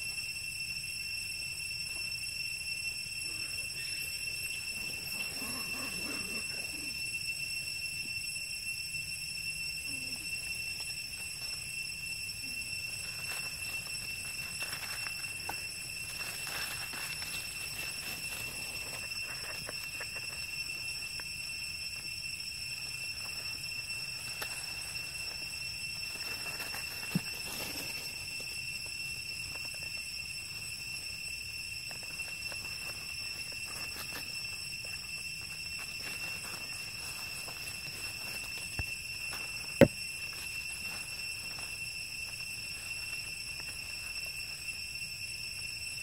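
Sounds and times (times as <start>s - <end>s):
steady high-pitched whine: 0.0s - 46.0s
dry leaves crackling and rustling: 16.0s - 19.6s, 26.1s - 28.3s, 35.8s - 38.7s.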